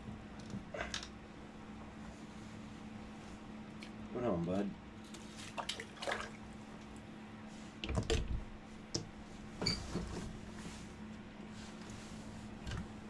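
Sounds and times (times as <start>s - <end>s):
steady low hum: 0.0s - 13.0s
slushy water splashing: 5.5s - 6.4s.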